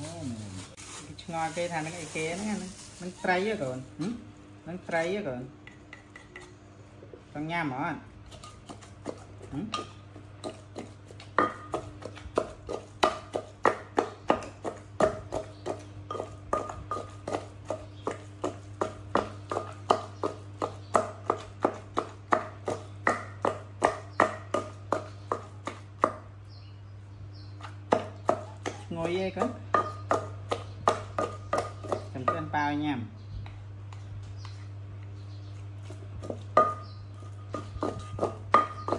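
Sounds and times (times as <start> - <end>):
pestle pounding in clay mortar: 8.2 - 26.4, 27.6 - 32.6, 35.8 - 38.9.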